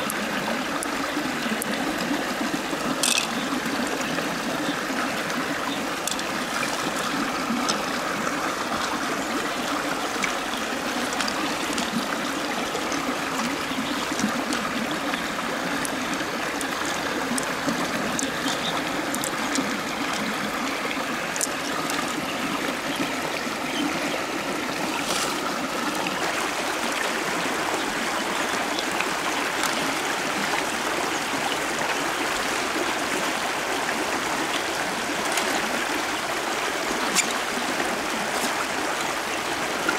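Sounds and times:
stream running over rocks: 0.0 - 39.9.

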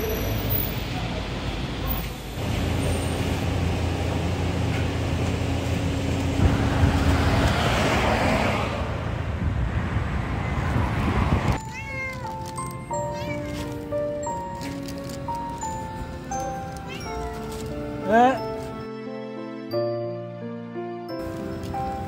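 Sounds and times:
traffic noise: 0.0 - 19.0, 21.1 - 22.0
cat meowing: 11.6 - 12.4, 16.8 - 17.6
light tune: 11.6 - 22.0.

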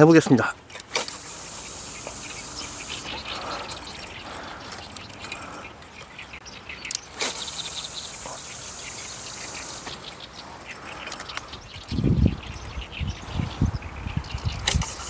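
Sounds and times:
fishing reel click: 0.7 - 4.2, 6.9 - 10.2
fishing line hissing: 0.7 - 6.1, 7.0 - 12.0
insect trilling: 0.7 - 13.0.

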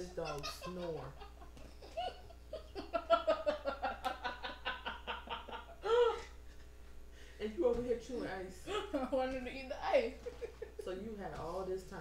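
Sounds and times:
women laughing: 0.0 - 6.7, 10.2 - 10.9.

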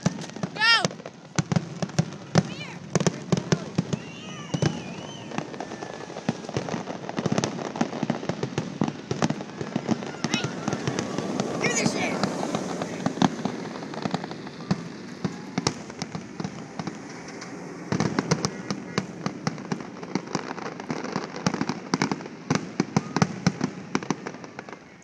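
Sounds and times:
fireworks crackling and banging: 0.0 - 25.0.

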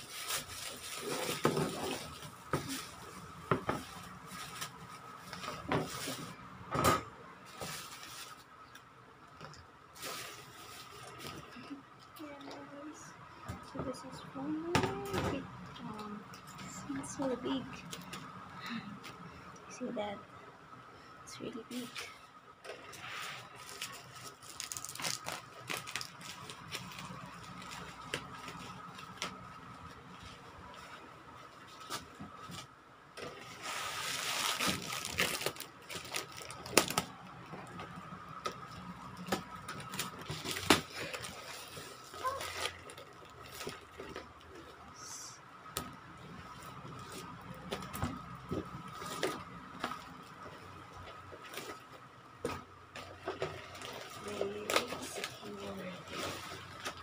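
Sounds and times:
bubble wrap crinkling: 0.0 - 6.5, 7.4 - 8.7, 9.9 - 11.7, 22.7 - 44.9, 53.0 - 57.0.

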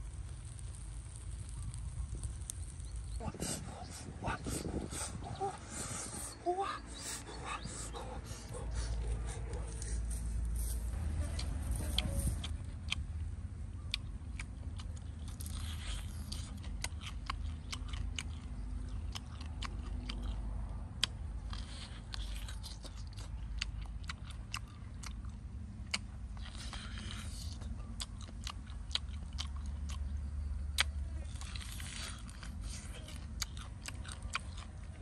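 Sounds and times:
person chewing meat: 0.0 - 10.7, 12.4 - 13.1, 13.8 - 35.0
teeth and mouth clicks: 13.9 - 35.0.

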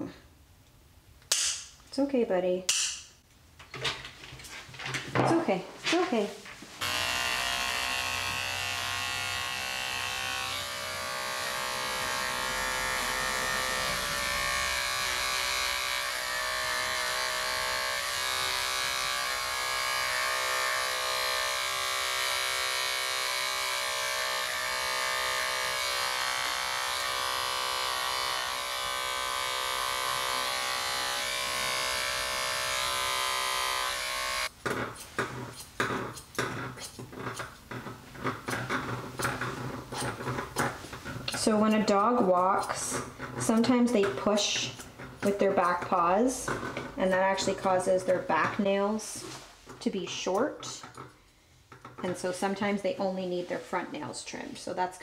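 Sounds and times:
pet hair clipper humming: 6.8 - 34.6.

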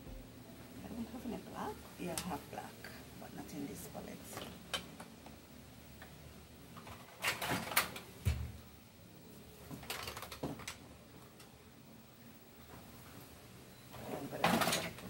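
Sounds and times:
low thump: 0.0 - 0.3.

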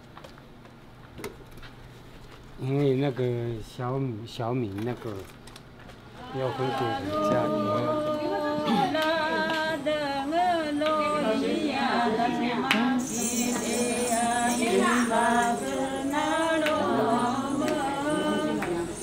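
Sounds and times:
voices singing wavering melody: 6.2 - 19.0.

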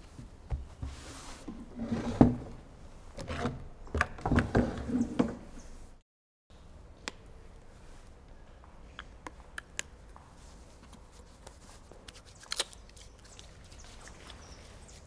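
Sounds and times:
hands rubbing and rustling: 10.3 - 15.0.

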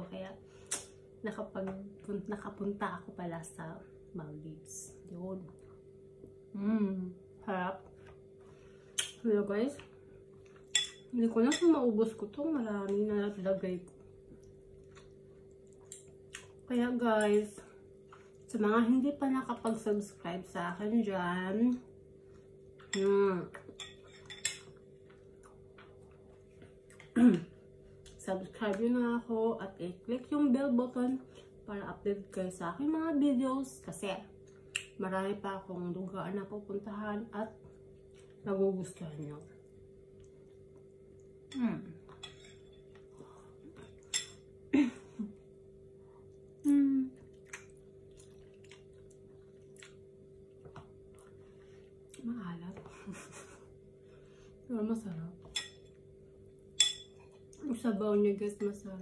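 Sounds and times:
woman humming mmm: 6.5 - 7.2, 27.1 - 27.6, 41.5 - 42.1, 46.6 - 47.2
fork clinking against ceramic bowl: 10.7 - 11.7, 56.8 - 57.2.

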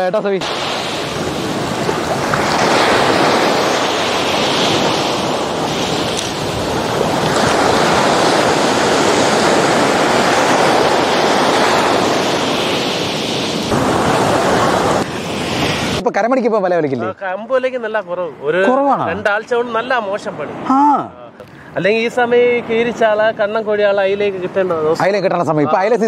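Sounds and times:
waves breaking on shore: 0.0 - 16.1
wind buffeting microphone: 0.4 - 16.0.

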